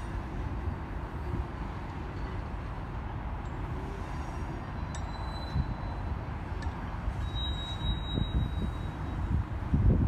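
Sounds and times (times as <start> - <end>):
distant freight train rumble: 0.0 - 10.0
steel wheels squealing: 3.5 - 9.6.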